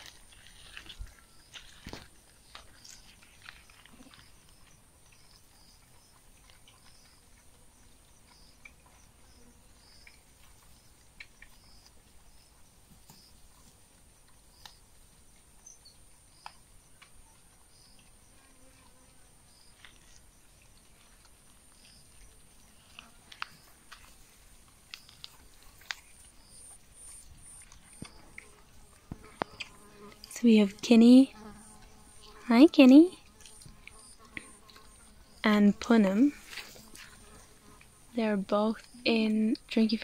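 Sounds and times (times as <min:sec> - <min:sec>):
faint ticks: 0:19.6 - 0:30.4, 0:31.3 - 0:35.5
high insect drone: 0:25.8 - 0:40.0.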